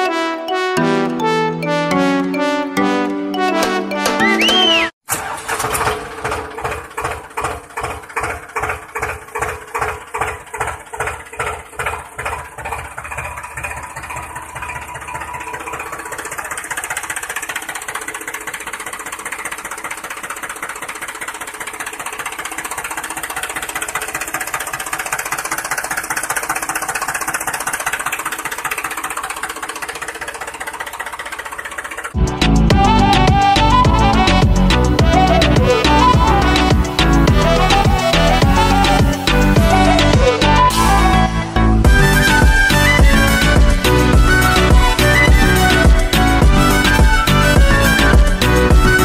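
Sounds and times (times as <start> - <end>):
model tractor motor chugging: 4.5 - 41.2.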